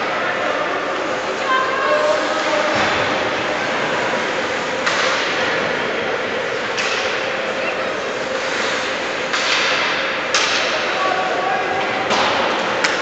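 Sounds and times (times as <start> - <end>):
skates and sticks hitting ice: 4.8 - 5.8, 6.7 - 7.3, 8.4 - 11.1, 11.7 - 13.0.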